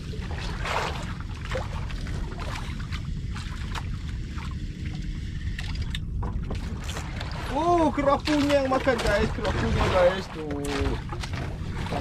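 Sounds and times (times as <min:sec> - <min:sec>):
steady low rumble: 0:00.0 - 0:12.0
water splashing against hull: 0:00.0 - 0:12.0.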